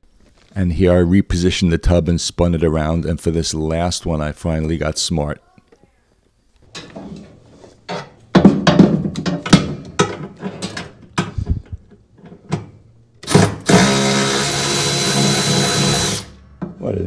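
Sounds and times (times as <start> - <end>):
metal clanks and knocks: 6.7 - 11.5
electric ratchet motor whine: 13.7 - 16.4.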